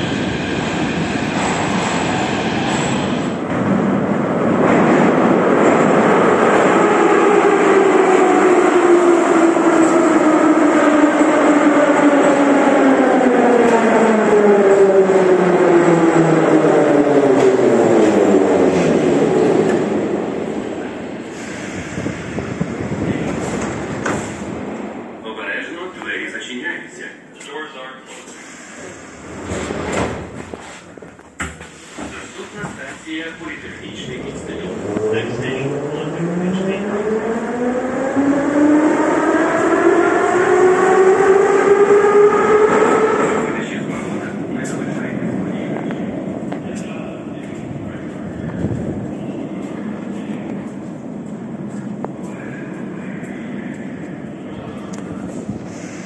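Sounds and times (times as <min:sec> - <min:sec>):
metro train braking whine: 0:05.6 - 0:24.6, 0:33.2 - 0:45.0, 0:48.7 - 0:56.0.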